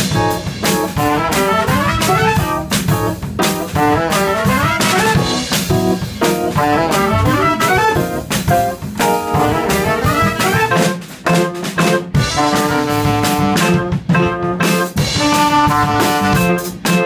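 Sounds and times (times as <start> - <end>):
drum kit with busy cymbals: 0.0 - 17.0
trumpet and saxophone melody: 0.0 - 17.0.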